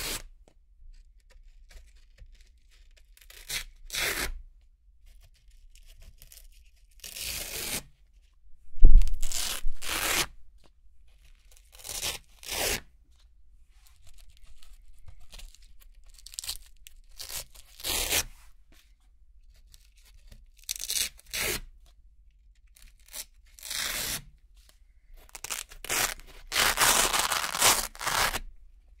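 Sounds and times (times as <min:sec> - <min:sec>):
velcro ripping: 0:08.8 - 0:10.4, 0:11.6 - 0:12.8, 0:15.6 - 0:18.3, 0:20.6 - 0:21.6, 0:22.8 - 0:24.3, 0:25.3 - 0:28.5.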